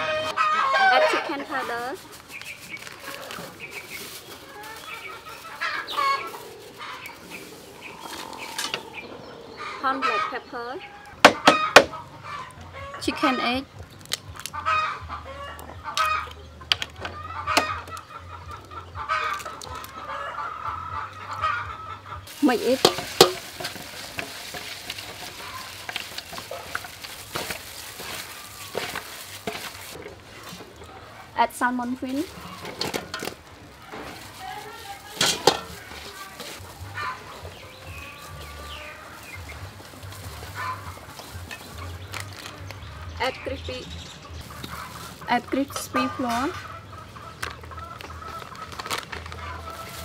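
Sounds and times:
drawn-out hen call: 0.0 - 2.1, 3.0 - 13.6, 17.1 - 42.1, 42.9 - 50.0
chickens clucking: 0.0 - 50.0
clicks and scrapes against metal: 32.4 - 34.2, 35.1 - 36.5.

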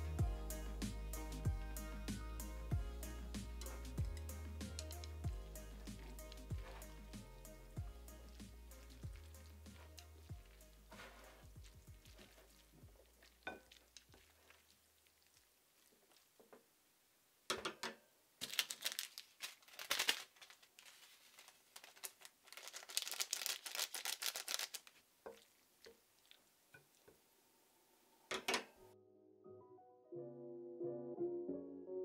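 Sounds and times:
plastic packet tearing and crinkling: 18.4 - 25.1.

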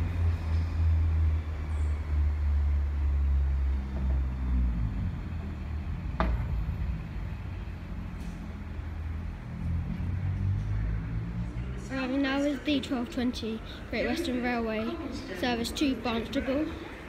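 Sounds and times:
diesel train engine rumbling: 0.0 - 17.0
sharp knock: 6.2 - 6.6.

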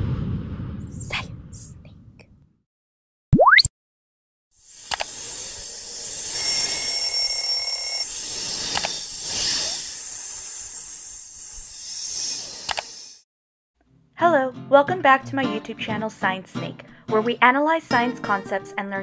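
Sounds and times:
high ringing tone: 6.2 - 8.1
mouse clicks: 12.7 - 12.9.

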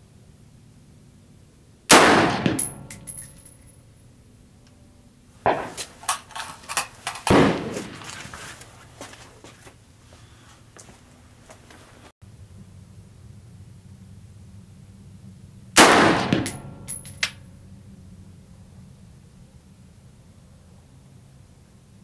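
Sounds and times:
rifle shot with ringing tail: 1.9 - 3.7, 5.5 - 5.8, 7.3 - 8.0, 15.8 - 17.3.

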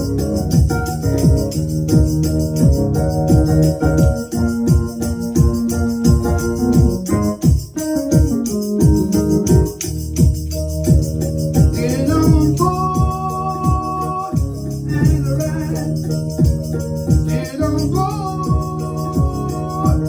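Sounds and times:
organ-like electronic keyboard: 0.0 - 20.0
man singing: 11.6 - 16.5, 17.1 - 20.0.

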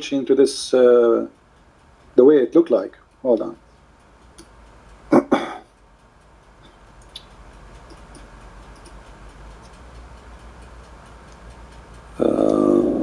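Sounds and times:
background hiss: 0.0 - 13.0
low hum: 2.9 - 13.0
faint light clicks: 6.6 - 9.8.

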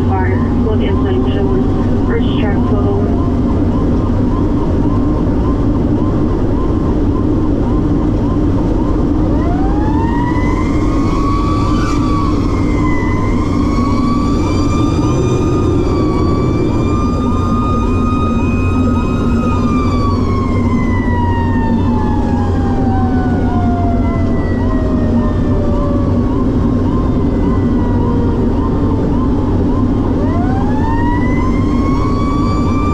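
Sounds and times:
chirping siren tone: 0.0 - 32.9
fire engine siren wailing: 0.0 - 32.9
truck engine drone: 0.0 - 32.9.

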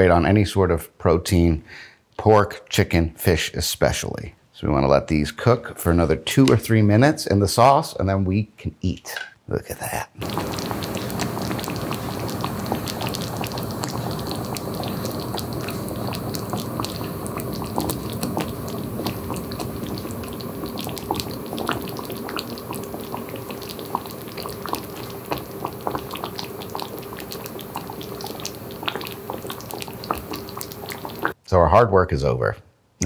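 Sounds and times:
sauce bubbling in a skillet: 10.2 - 31.4
small pops and crackles: 10.2 - 31.4.

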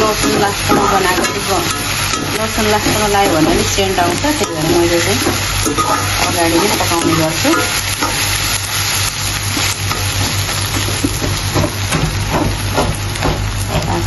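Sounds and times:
metal ladle scraping a pan: 0.0 - 8.4
onions sizzling in hot oil: 0.0 - 14.0
steady low hum: 0.0 - 14.0.

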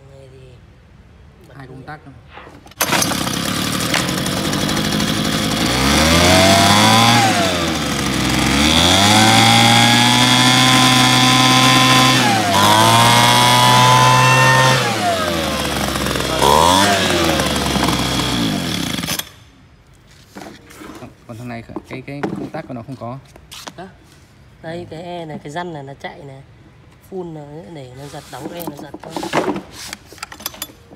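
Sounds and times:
leaf blower engine revving: 2.8 - 19.4.

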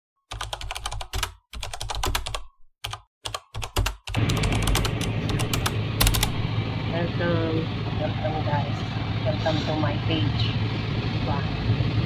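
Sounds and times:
computer keyboard typing: 0.3 - 6.4
car road and engine hum: 4.2 - 12.0.

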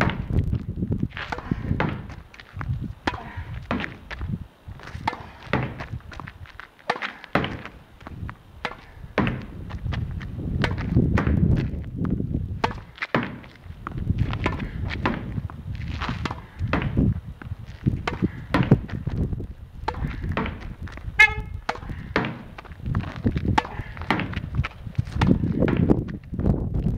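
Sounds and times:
tennis ball hitting racket: 4.9 - 7.8, 8.6 - 9.6, 10.6 - 11.4, 12.6 - 13.6, 14.3 - 17.0, 18.0 - 19.0, 19.8 - 22.7, 23.5 - 25.9
ball smacking wall: 5.0 - 5.9, 6.9 - 7.8, 8.6 - 9.6, 16.2 - 17.0, 23.5 - 24.4
ball bouncing on court: 8.6 - 9.6, 18.0 - 18.9, 23.5 - 24.4.

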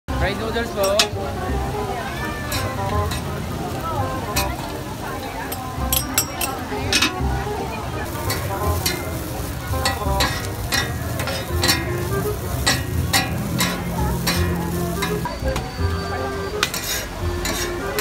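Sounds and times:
frying sizzle: 0.1 - 18.0
metal spatulas scraping on griddle: 2.5 - 3.4, 4.3 - 7.2, 8.0 - 15.4, 16.5 - 18.0.

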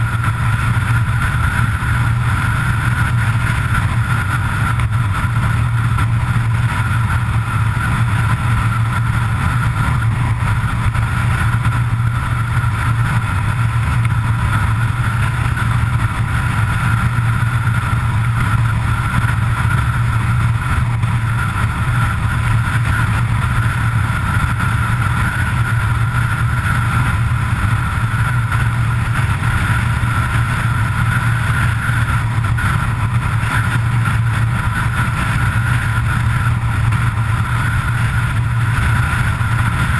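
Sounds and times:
road and wind noise: 0.0 - 39.9
vehicle engine drone: 0.0 - 39.9.

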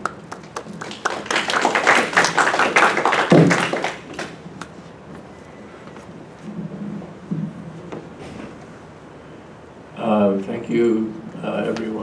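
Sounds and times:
audience applause: 0.0 - 4.4.

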